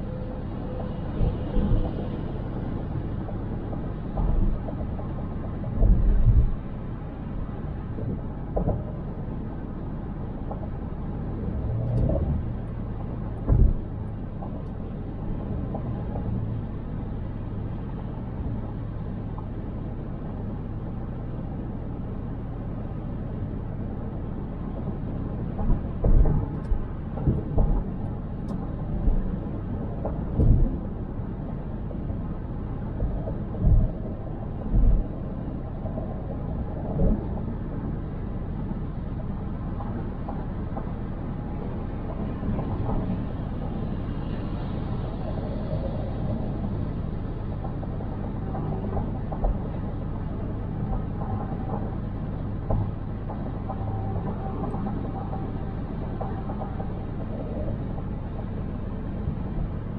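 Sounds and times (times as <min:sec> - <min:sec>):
car driving low rumble: 0:00.0 - 0:59.9.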